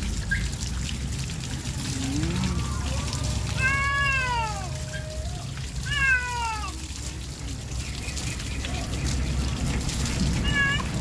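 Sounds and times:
cat meowing: 0:03.6 - 0:04.8, 0:05.9 - 0:06.8, 0:10.4 - 0:10.9.

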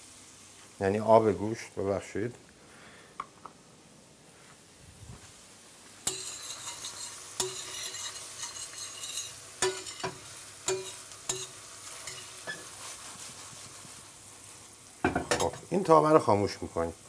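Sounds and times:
food sizzling in frying pan: 0:00.0 - 0:02.5, 0:04.4 - 0:17.0
spoon knocking against pan: 0:07.4 - 0:11.5.

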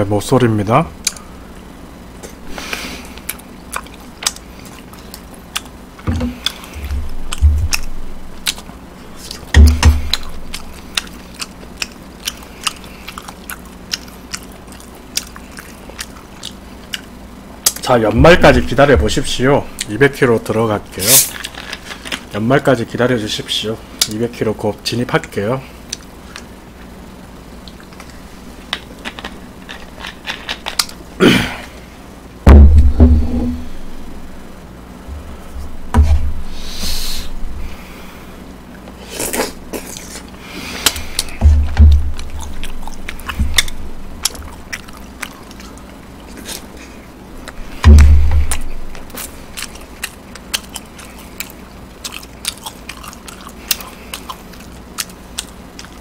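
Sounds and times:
person chewing: 0:02.2 - 0:19.9, 0:21.0 - 0:22.3, 0:27.6 - 0:31.0, 0:38.7 - 0:56.0
low thumps: 0:06.1 - 0:08.4, 0:18.1 - 0:19.8, 0:32.4 - 0:36.6, 0:47.7 - 0:49.0.

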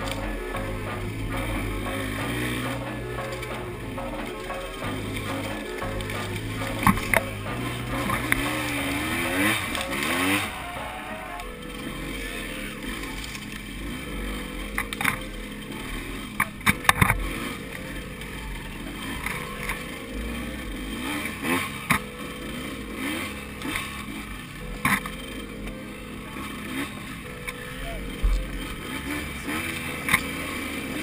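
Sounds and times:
sharp knocks and clatters: 0:00.0 - 0:10.6
dirt bike engine revving: 0:00.0 - 0:31.0.

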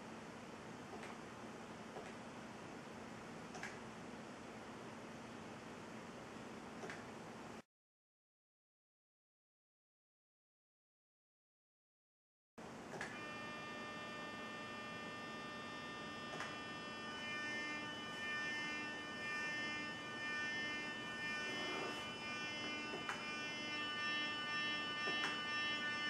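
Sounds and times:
buzzy humming music from motors: 0:13.0 - 0:26.0.

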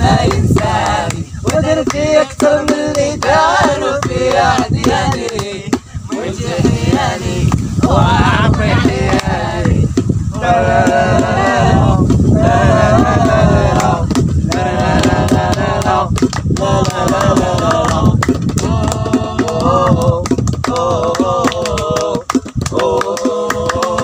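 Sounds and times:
group of men singing: 0:00.0 - 0:24.0
hands clapping: 0:00.2 - 0:11.6, 0:12.9 - 0:24.0.

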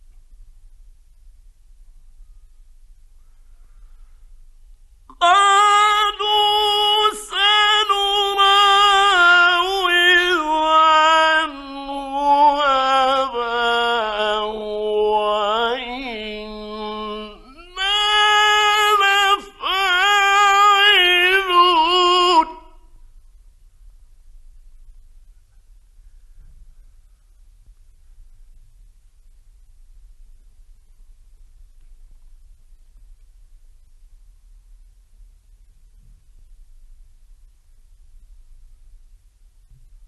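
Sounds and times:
faint low hum: 0:00.0 - 0:40.0
man chanting melodically: 0:05.1 - 0:22.8.

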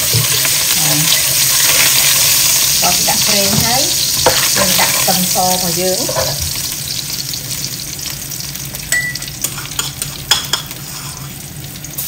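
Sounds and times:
hot oil sizzling: 0:00.0 - 0:12.0
spatula tapping and scraping pan: 0:03.4 - 0:05.2, 0:06.0 - 0:06.5.

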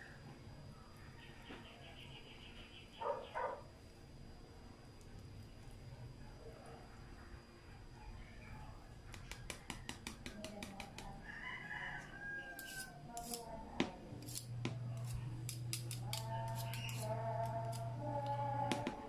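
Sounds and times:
whisk clicking against bowl: 0:09.1 - 0:11.1.

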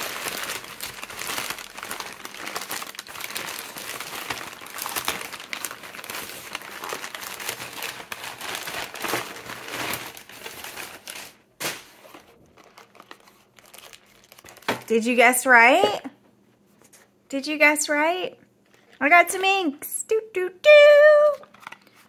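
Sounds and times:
packing paper crinkling: 0:00.0 - 0:15.1, 0:21.0 - 0:22.0.

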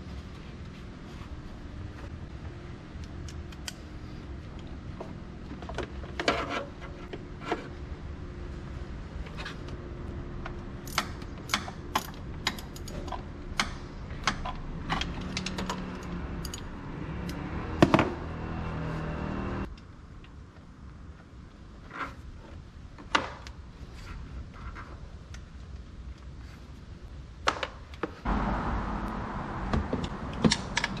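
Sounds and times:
metallic tool clicks and clinks: 0:15.3 - 0:16.7.

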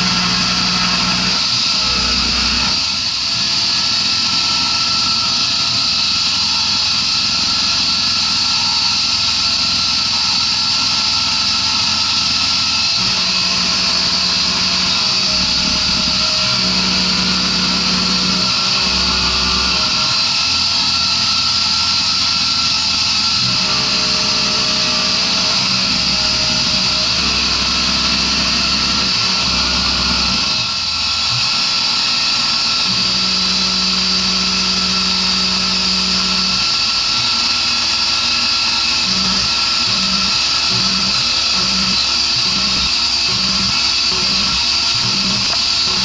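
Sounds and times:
milling spindle cutting whine: 0:00.0 - 0:27.8, 0:38.5 - 0:46.0
low hum of axis drives: 0:38.8 - 0:46.0.

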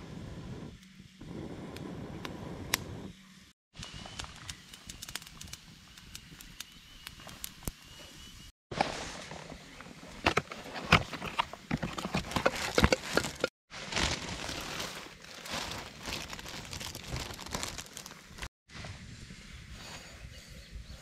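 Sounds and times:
plastic bag crinkling: 0:12.2 - 0:18.5.

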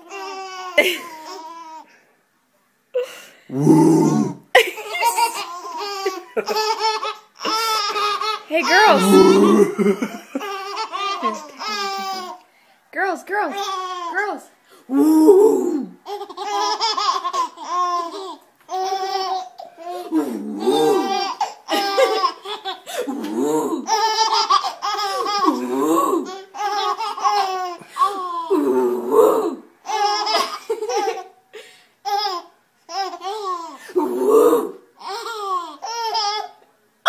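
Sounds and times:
babies laughing: 0:00.0 - 0:01.8, 0:04.6 - 0:12.4, 0:16.0 - 0:28.5, 0:29.8 - 0:31.4, 0:35.0 - 0:36.6.

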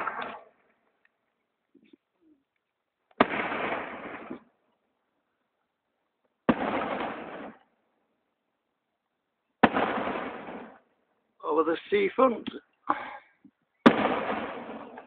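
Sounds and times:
firework shells bursting: 0:00.0 - 0:00.6, 0:03.1 - 0:04.5, 0:06.5 - 0:07.7, 0:09.6 - 0:10.9, 0:13.8 - 0:15.0.

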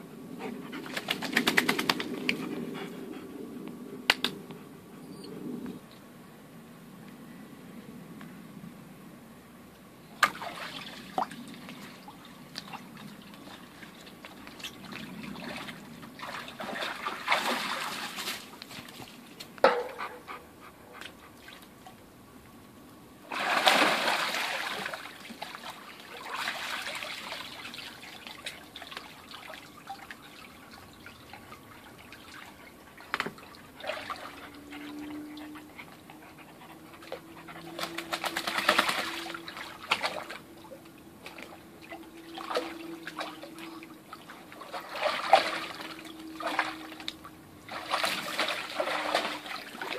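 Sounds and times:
dog splashing in water: 0:10.2 - 0:20.2, 0:23.3 - 0:35.7, 0:37.0 - 0:40.5, 0:41.2 - 0:49.9.

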